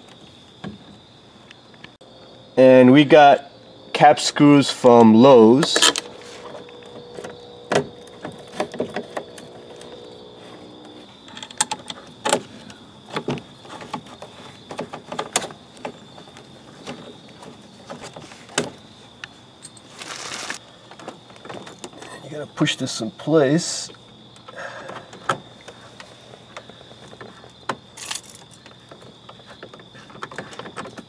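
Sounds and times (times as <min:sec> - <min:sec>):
scraping rustle: 0:05.8 - 0:07.3, 0:07.9 - 0:22.2.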